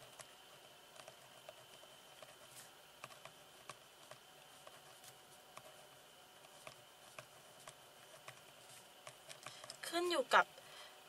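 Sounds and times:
pen writing on paper: 0:01.0 - 0:09.4.

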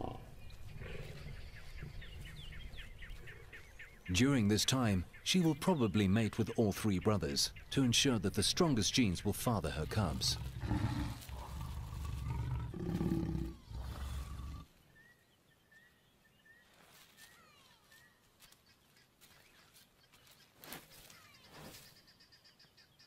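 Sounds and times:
lions growling: 0:00.0 - 0:02.4, 0:09.8 - 0:14.7.

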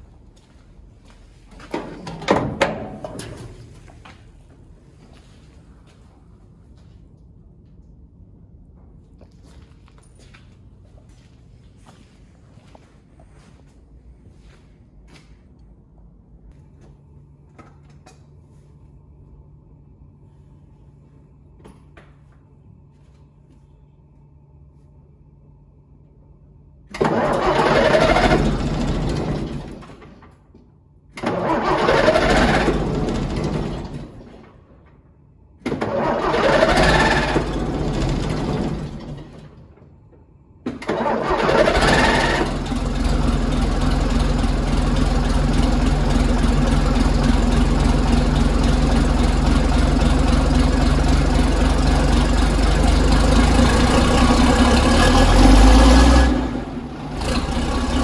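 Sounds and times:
diesel engine starting attempts: 0:26.9 - 0:30.3, 0:31.1 - 0:34.7, 0:35.6 - 0:39.8, 0:40.6 - 0:58.0
diesel engine idling: 0:41.0 - 0:58.0.

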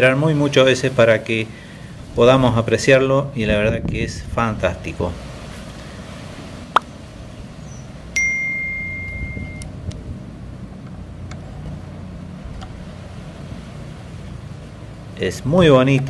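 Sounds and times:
high bell ding: 0:08.2 - 0:09.7.

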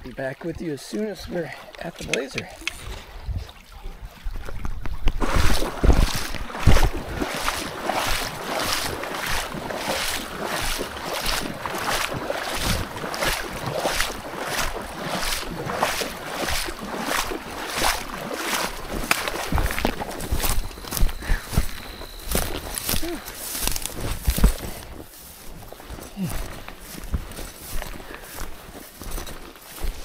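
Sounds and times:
footsteps in waders: 0:00.0 - 0:30.0.

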